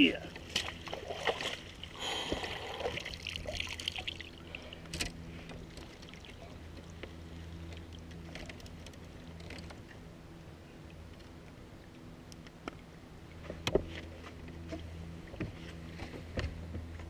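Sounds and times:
water splashing and trickling: 0:00.0 - 0:10.0
steady low hum: 0:00.0 - 0:17.0.

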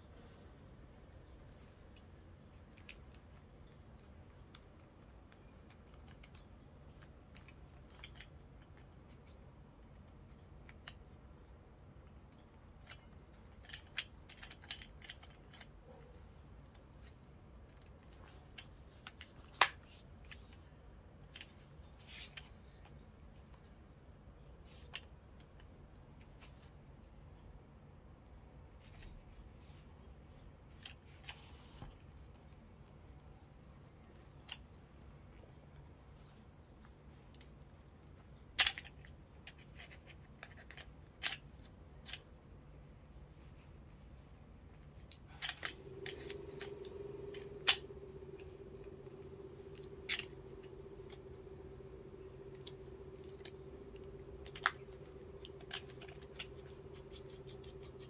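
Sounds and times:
small metal and plastic clicks: 0:02.5 - 0:23.0, 0:37.2 - 0:42.3, 0:44.7 - 0:58.0.

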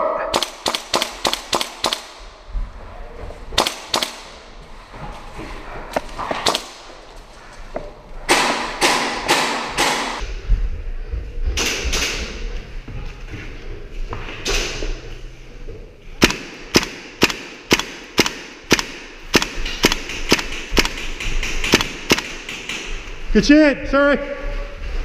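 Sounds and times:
airsoft rifle shots: 0:00.3 - 0:02.3, 0:03.6 - 0:04.4, 0:06.3 - 0:06.9, 0:08.3 - 0:10.2, 0:16.2 - 0:22.9.

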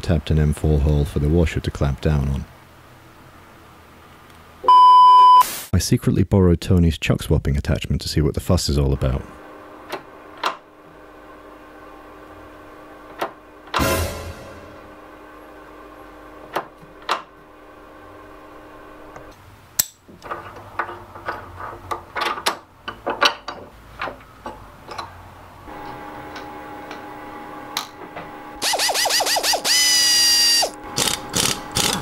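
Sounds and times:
machine whine: 0:25.7 - 0:32.0
rapid ratcheting burst: 0:28.6 - 0:32.0.

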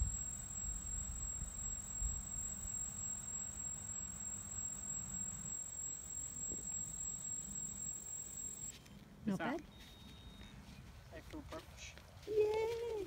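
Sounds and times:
quadcopter motors humming: 0:00.0 - 0:08.7
high thin tone: 0:00.0 - 0:08.8.

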